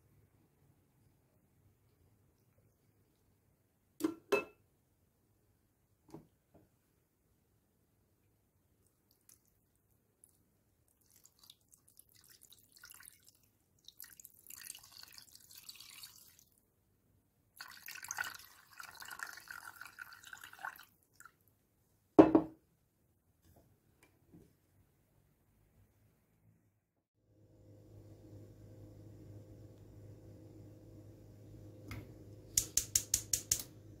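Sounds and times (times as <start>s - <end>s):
water pouring into a metal pot: 11.0s - 16.6s, 17.6s - 21.4s
glass knocking on a table: 22.2s - 22.6s.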